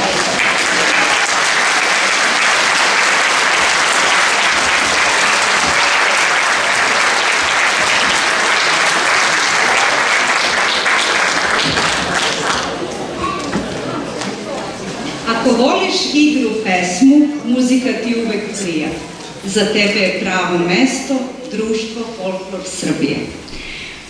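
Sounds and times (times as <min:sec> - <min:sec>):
audience clapping: 0:00.0 - 0:14.4.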